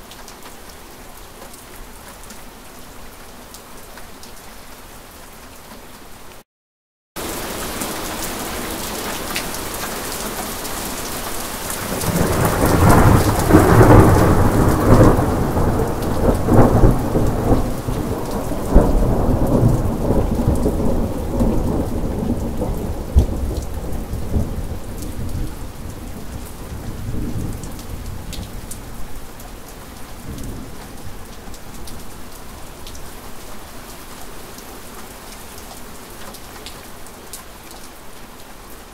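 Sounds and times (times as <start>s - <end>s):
steady rain: 0.0s - 6.4s, 7.2s - 38.9s
thunder rumbling: 11.8s - 28.5s.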